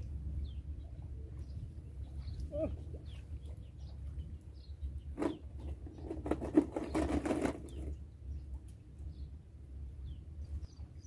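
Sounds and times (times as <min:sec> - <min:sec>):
wind rumble on microphone: 0:00.0 - 0:11.0
faint bird chirps: 0:00.4 - 0:04.9.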